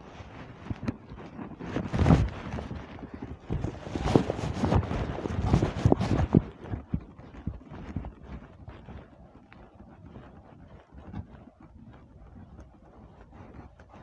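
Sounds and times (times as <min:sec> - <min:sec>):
clothing rustling: 0:00.1 - 0:06.4.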